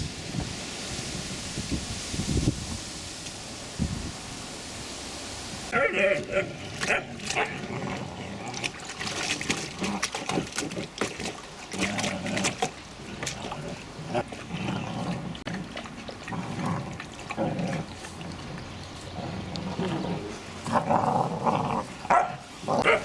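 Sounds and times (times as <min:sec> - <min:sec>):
puppies grunting: 0:05.7 - 0:23.0
water splashing in paddling pool: 0:05.7 - 0:23.0.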